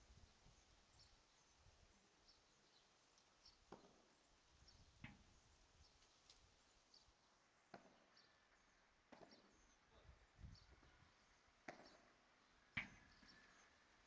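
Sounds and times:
ball knocking on racket: 12.8 - 13.0.

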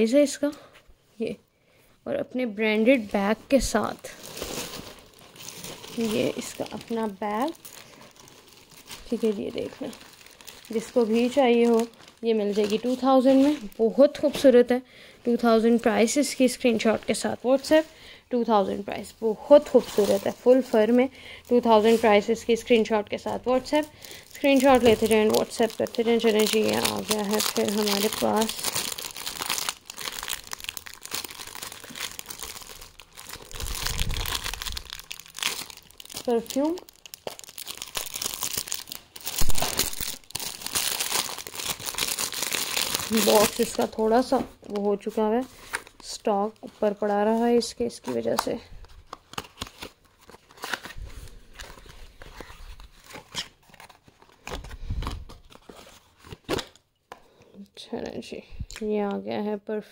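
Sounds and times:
packaging crinkling: 4.0 - 14.2, 21.5 - 45.0, 47.2 - 56.8.

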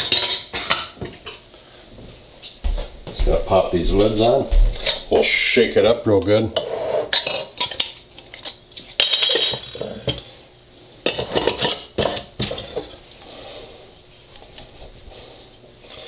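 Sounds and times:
glass jars clinking and rattling: 9.0 - 10.0.

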